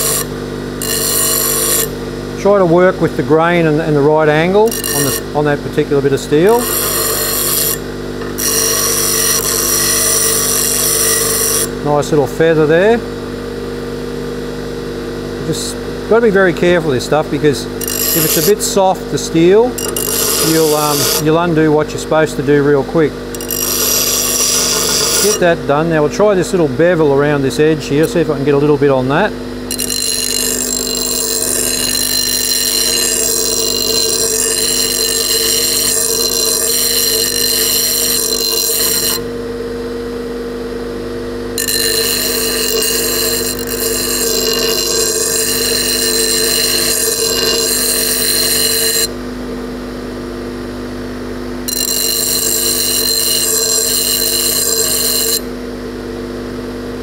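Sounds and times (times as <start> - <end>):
metal grinding on wheel: 0.0 - 11.8, 16.6 - 21.7, 22.3 - 25.8, 29.2 - 39.3, 41.6 - 49.2, 51.7 - 55.5
bench grinder motor humming: 0.0 - 13.3, 15.4 - 39.4, 41.4 - 49.2, 51.6 - 55.6.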